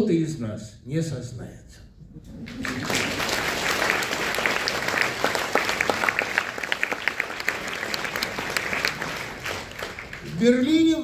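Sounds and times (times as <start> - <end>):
audience applauding: 2.3 - 11.0.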